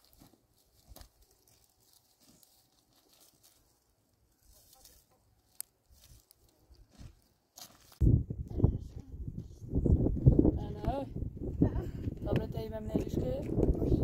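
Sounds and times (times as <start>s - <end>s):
footsteps crunching on stones: 0.0s - 8.0s.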